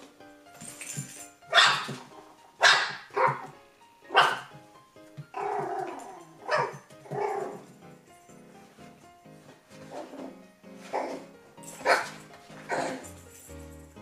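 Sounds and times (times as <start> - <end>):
puppy drawn-out cry: 5.4 - 7.6.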